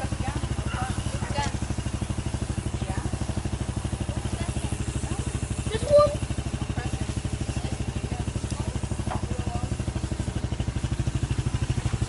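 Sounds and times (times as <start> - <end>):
go kart engine idling: 0.0 - 12.0.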